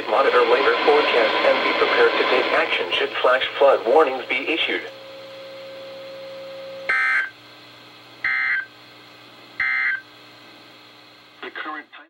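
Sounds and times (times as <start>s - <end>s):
steady low tone: 0.0s - 7.0s.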